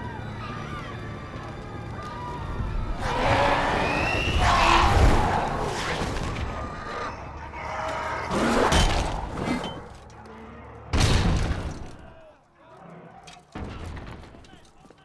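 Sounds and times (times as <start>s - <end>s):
men shouting: 2.0s - 5.8s
heavy crashes and booms: 11.0s - 12.2s.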